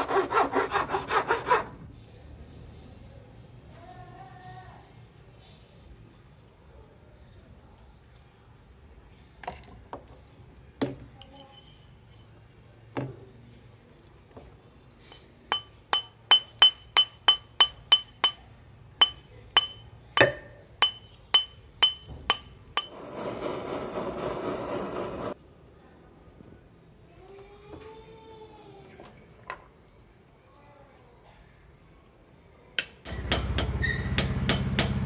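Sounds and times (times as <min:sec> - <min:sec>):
metallic tapping steel on steel: 0:15.1 - 0:22.9, 0:32.8 - 0:35.0.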